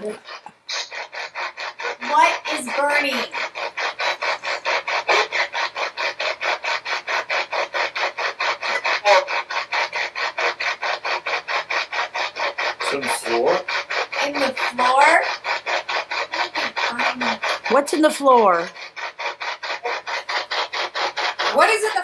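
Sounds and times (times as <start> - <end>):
radio static sweeping bursts: 0.0 - 22.0
voice-like fragments: 12.8 - 18.9.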